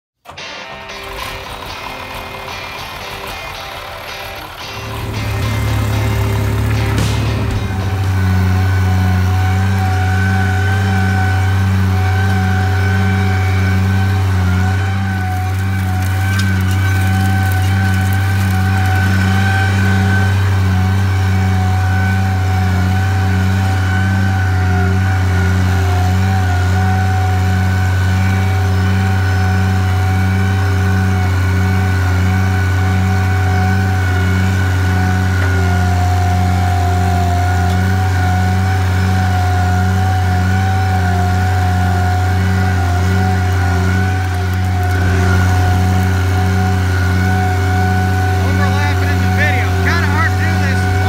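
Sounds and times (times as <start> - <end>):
tractor engine at full throttle: 0.1 - 51.0
steady whine: 0.3 - 22.0.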